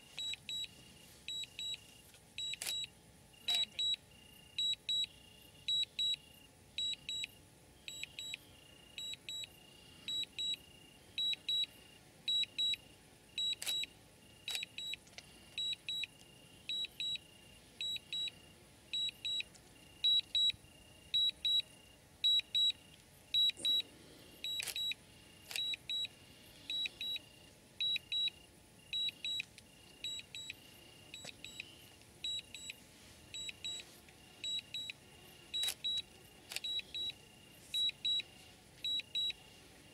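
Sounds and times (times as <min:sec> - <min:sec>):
crickets chirping: 0:00.0 - 0:39.9
sharp clicks: 0:35.6 - 0:37.2.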